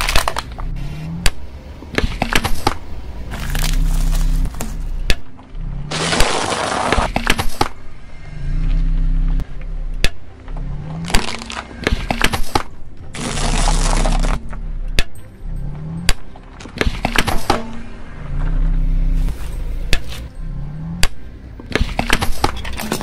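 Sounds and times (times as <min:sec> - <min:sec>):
tyre crushing small objects: 0:00.0 - 0:00.7, 0:01.3 - 0:05.3, 0:05.9 - 0:07.8, 0:10.5 - 0:15.1.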